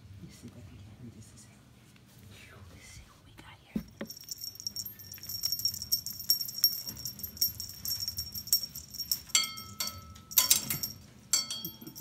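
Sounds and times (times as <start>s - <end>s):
jingle bells rattling: 3.9s - 12.0s.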